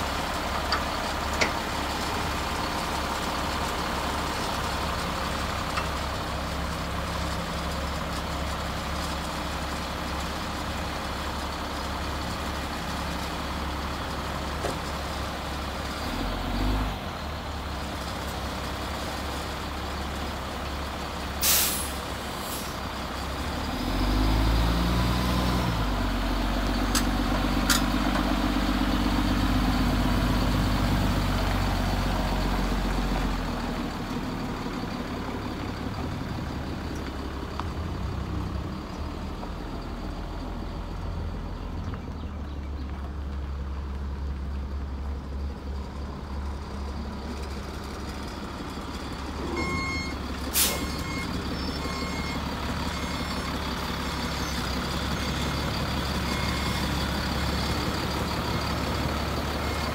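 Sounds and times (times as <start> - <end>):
diesel truck engine idling: 0.0 - 59.9
backup alarm beeping: 49.4 - 53.3.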